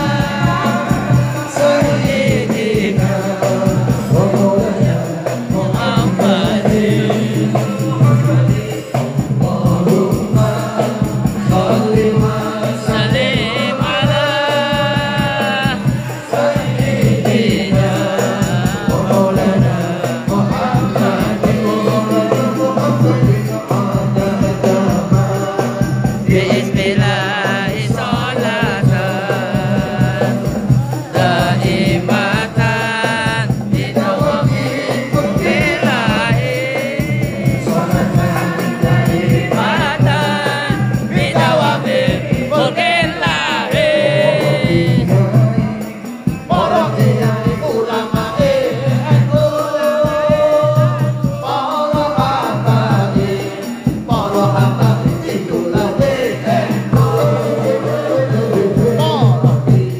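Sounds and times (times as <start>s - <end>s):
fast hand-drum percussion: 0.0s - 59.9s
lead voice and chorus singing: 0.0s - 59.9s.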